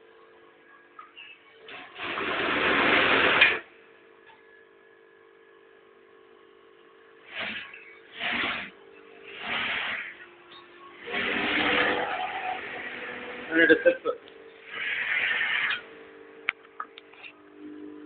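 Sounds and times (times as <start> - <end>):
faint steady hum: 0.0 - 2.0, 2.7 - 18.0
sewing machine running: 1.7 - 3.7, 7.3 - 10.2, 11.0 - 13.8, 14.6 - 15.8.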